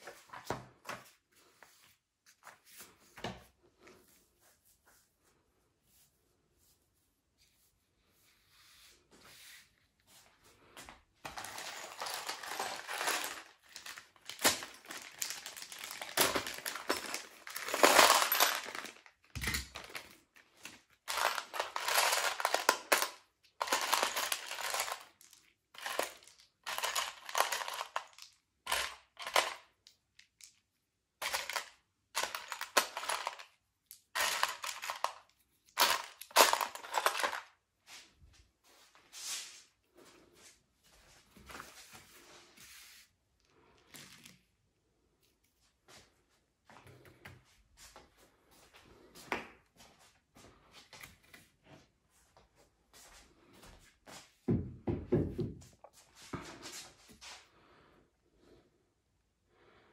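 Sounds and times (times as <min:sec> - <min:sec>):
metal screws rattling in plastic tray: 0:11.3 - 0:20.2, 0:21.1 - 0:29.6, 0:31.2 - 0:37.5.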